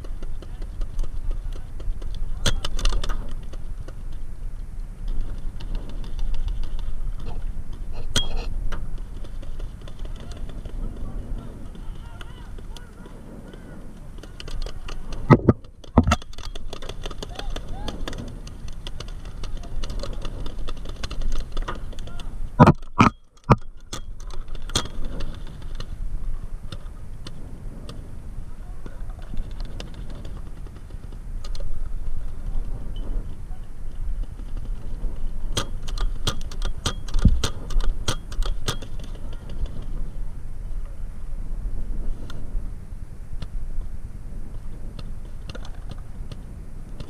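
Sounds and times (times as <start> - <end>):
paintball gear rattling: 0.0 - 40.3, 43.4 - 47.0
sharp clicks and pops: 14.2 - 26.0, 35.5 - 39.9.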